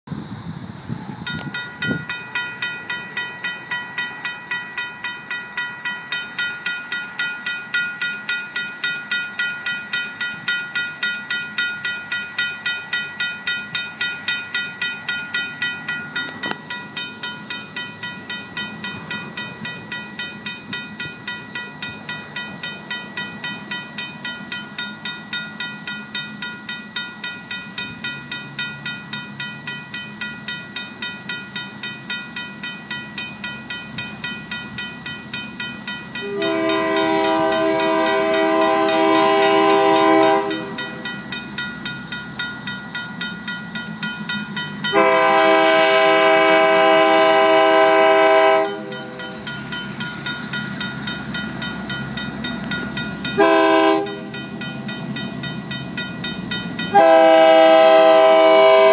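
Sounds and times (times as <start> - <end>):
diesel locomotive rumble: 0.1 - 58.9
crossing bell ringing: 1.2 - 58.9.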